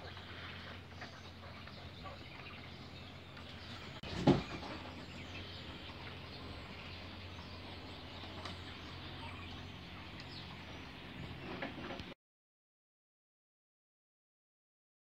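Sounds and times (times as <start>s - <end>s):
quail chicks peeping: 0.0s - 12.1s
steady background hum: 0.0s - 12.2s
loud thump: 4.0s - 4.7s.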